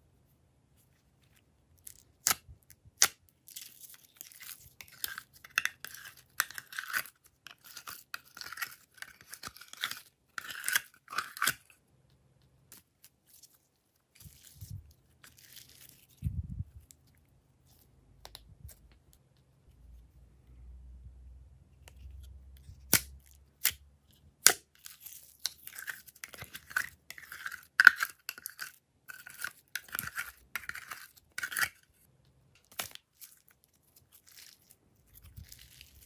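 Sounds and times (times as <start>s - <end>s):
slime crackling and squelching: 32.7s - 36.0s.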